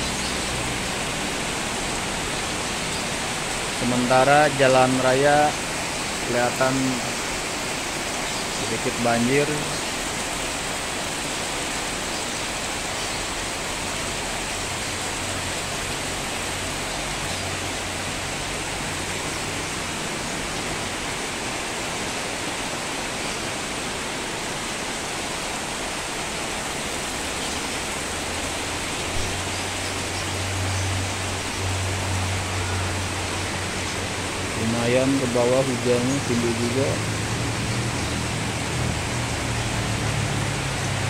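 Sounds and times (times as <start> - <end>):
heavy rain on tile roofs: 0.0 - 41.0.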